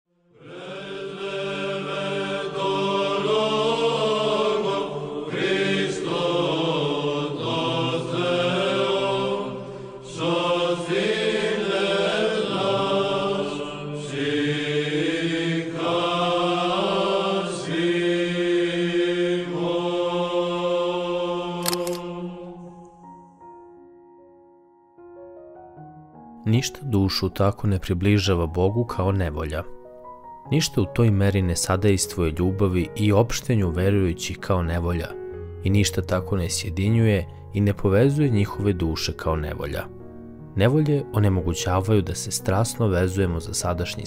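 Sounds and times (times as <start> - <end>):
choir chanting: 0.2 - 23.2.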